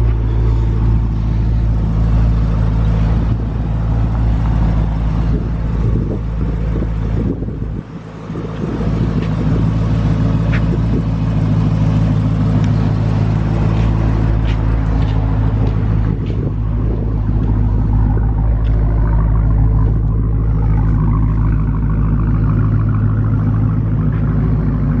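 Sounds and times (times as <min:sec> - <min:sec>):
car engine idling: 0:00.0 - 0:25.0.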